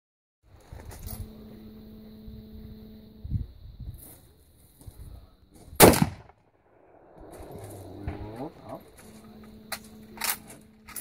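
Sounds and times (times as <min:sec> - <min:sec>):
rifle shot: 0:05.8 - 0:07.6.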